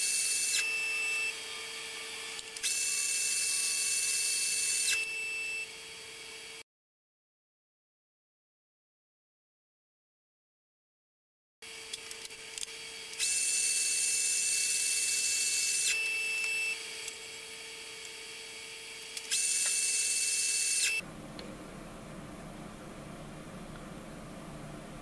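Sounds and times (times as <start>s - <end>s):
small motor whining: 0.0s - 6.6s, 11.6s - 21.0s
steady low hum: 21.0s - 25.0s.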